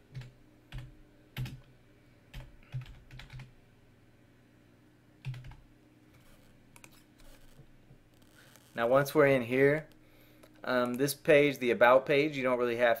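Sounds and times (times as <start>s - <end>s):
computer keyboard typing: 0.1s - 1.7s, 2.3s - 3.5s, 5.2s - 5.6s.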